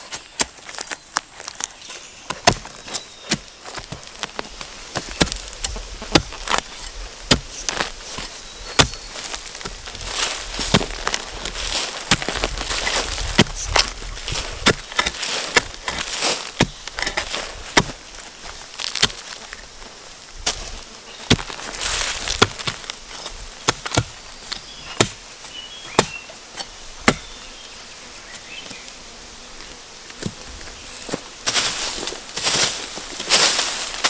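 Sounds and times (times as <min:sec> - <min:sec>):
hand tool chopping bamboo: 0:02.3 - 0:04.4, 0:05.0 - 0:18.0, 0:18.8 - 0:19.4, 0:21.3 - 0:22.9, 0:23.6 - 0:25.2.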